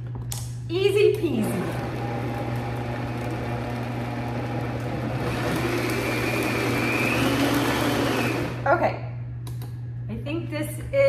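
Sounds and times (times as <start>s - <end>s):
blender motor whirring: 1.2s - 8.8s.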